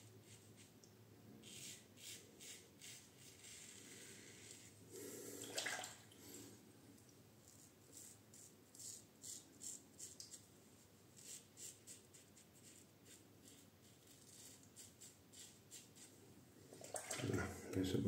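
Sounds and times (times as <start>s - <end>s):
razor scraping beard: 1.4s - 4.7s, 7.5s - 10.4s, 11.2s - 16.1s.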